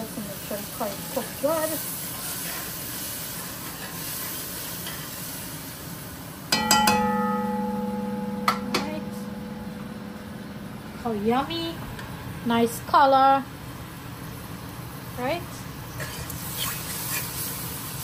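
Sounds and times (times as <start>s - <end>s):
curry sizzling in pot: 0.0s - 12.8s
metal spoon knocking pot: 6.5s - 10.9s
pot ringing: 6.5s - 11.7s.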